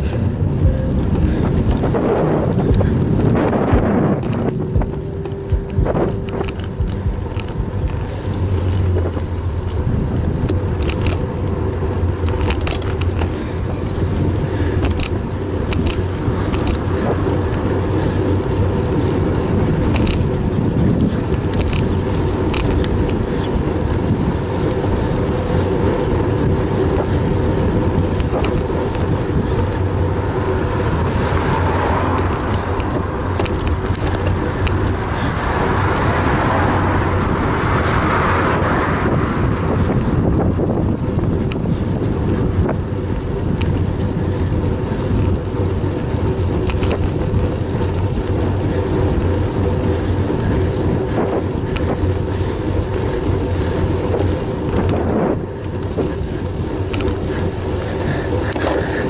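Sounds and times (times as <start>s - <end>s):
wind and road rush on microphone: 0.0s - 59.0s
small clicks and knocks: 10.4s - 11.5s, 12.2s - 13.4s, 14.8s - 17.1s, 19.8s - 23.5s, 28.2s - 29.1s, 32.4s - 34.9s, 46.6s - 47.4s.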